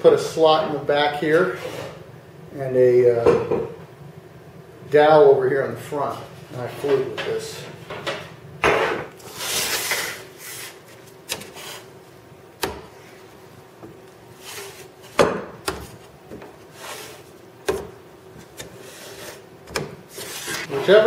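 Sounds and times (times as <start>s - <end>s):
sheet metal scraping on bench: 1.4s - 2.0s, 20.1s - 21.0s.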